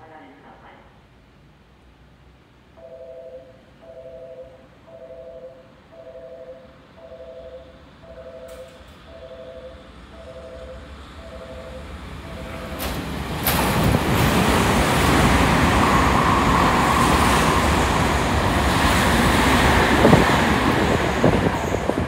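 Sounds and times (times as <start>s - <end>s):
electric train passing at speed: 5.9s - 22.0s.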